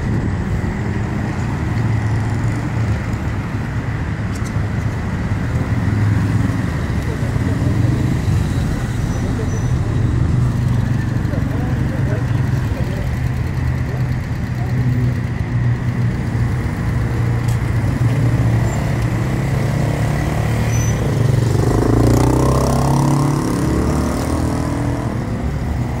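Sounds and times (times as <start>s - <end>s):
vehicle engine idling: 7.0s - 18.0s.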